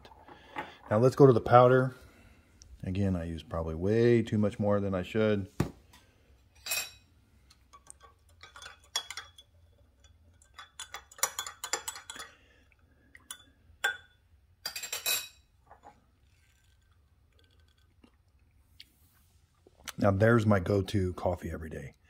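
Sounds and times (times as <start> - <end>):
metal spoon clinking in glass mug: 7.8 - 12.4, 13.2 - 15.4.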